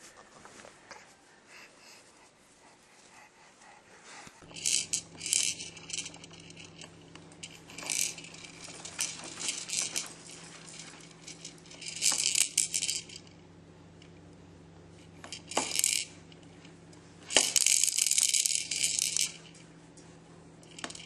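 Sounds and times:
plastic toys rattling and clicking: 4.4s - 13.3s, 15.2s - 16.2s, 17.3s - 19.6s, 20.6s - 21.0s.

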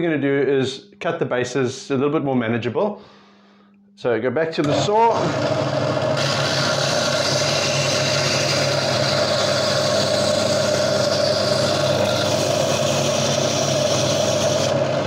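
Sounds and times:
bandsaw motor hum: 4.6s - 15.0s.

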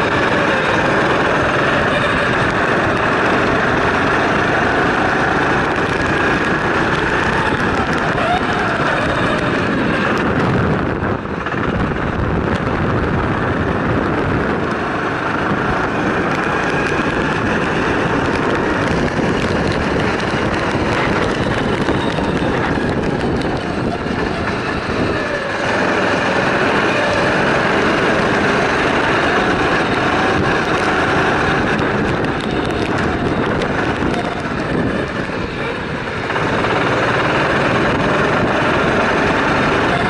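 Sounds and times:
go-kart engine running hard: 0.0s - 40.0s
wind noise: 0.0s - 40.0s.

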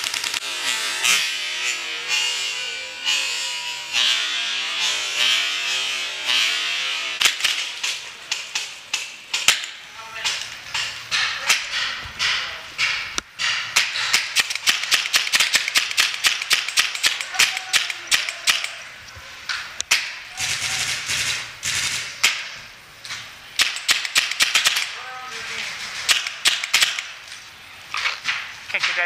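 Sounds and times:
paintball markers firing: 13.8s - 18.8s, 19.8s - 22.6s, 23.6s - 25.0s, 25.8s - 27.2s.

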